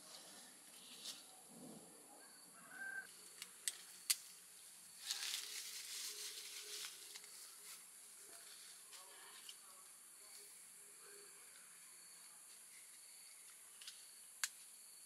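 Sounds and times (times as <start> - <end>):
bird call: 2.2 - 3.1
plastic bag rustling and crinkling: 5.0 - 9.2.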